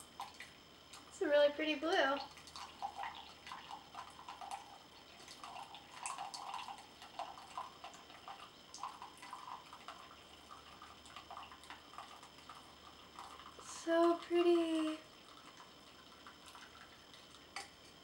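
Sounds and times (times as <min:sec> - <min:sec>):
tea trickling into glass mug: 0:02.2 - 0:13.7.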